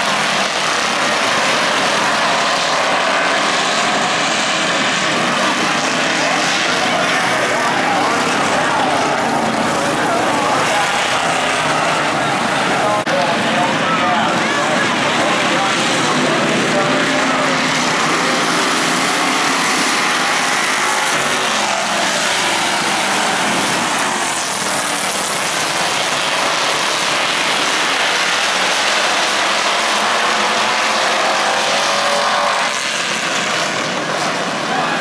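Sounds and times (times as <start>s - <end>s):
race car engines: 0.0s - 35.0s.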